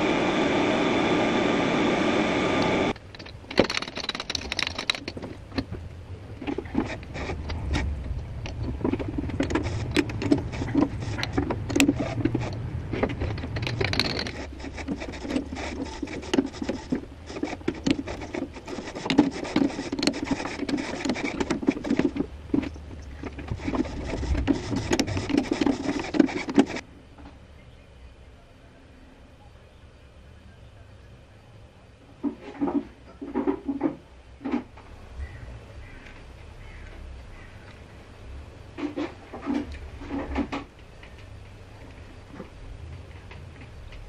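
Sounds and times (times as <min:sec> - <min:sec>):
low hum: 0:00.0 - 0:32.1
hand tool scraping and clicking on metal: 0:02.9 - 0:05.7, 0:06.4 - 0:26.8.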